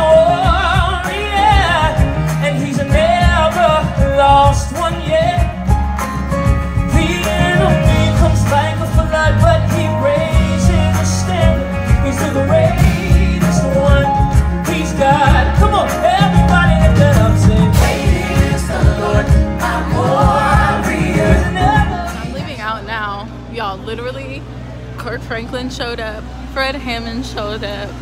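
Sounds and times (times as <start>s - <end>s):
steady drum beat: 0.0s - 23.0s
bass guitar: 0.0s - 28.0s
electric keyboard: 0.0s - 28.0s
person singing: 6.8s - 22.5s.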